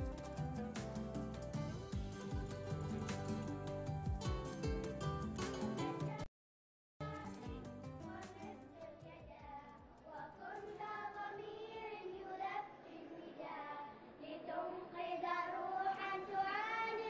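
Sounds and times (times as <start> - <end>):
girls singing together: 7.2 - 17.0.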